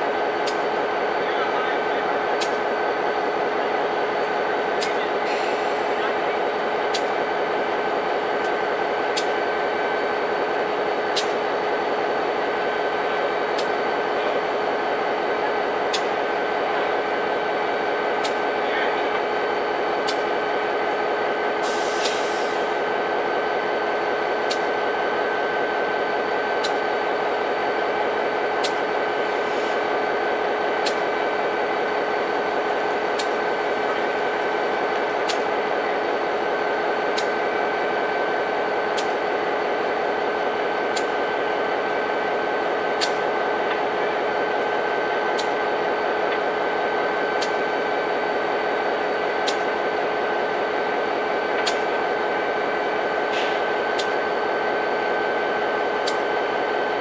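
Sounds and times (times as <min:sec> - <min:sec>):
diesel locomotive idling: 0:00.0 - 0:57.0
air hiss: 0:21.7 - 0:22.6.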